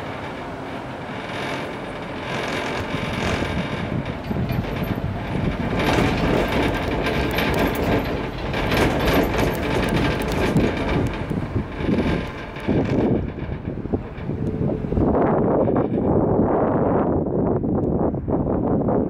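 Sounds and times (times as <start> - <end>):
cable car rumbling and rattling: 0.0 - 19.0
clatter of small clicks: 1.3 - 14.6.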